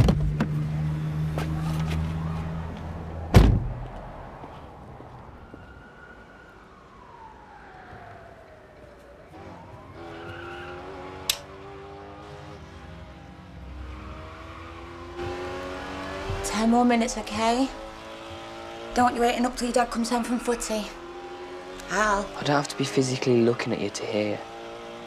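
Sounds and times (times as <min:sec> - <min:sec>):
car door shutting: 0:03.3 - 0:03.8.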